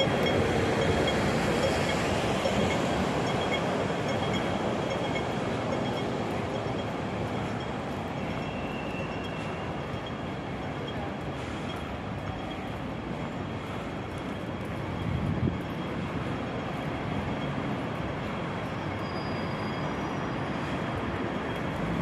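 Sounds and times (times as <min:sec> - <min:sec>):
street traffic rumble: 0:00.0 - 0:22.0.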